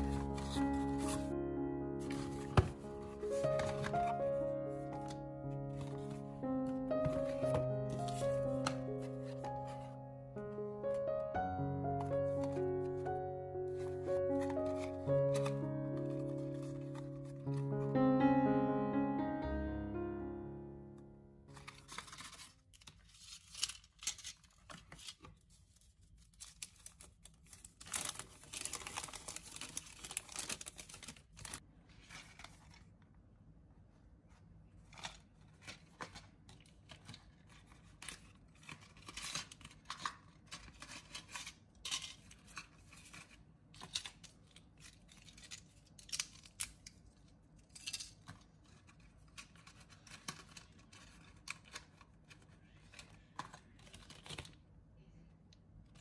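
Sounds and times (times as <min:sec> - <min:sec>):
packaging rustling and tearing: 0:00.0 - 0:01.4, 0:02.0 - 0:10.0, 0:11.9 - 0:17.9, 0:21.5 - 0:33.0, 0:34.8 - 0:54.6
plastic clicks and crinkles: 0:21.5 - 0:32.9, 0:34.8 - 0:54.6.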